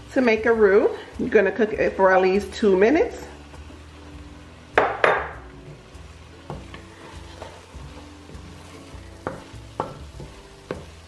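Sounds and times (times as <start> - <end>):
faint sizzle: 0.0 - 11.0
wooden spatula stirring in pot: 5.4 - 11.0.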